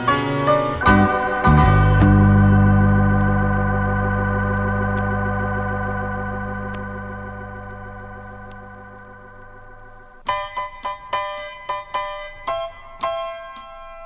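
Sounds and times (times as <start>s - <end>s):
organ holding a chord: 0.0s - 10.2s.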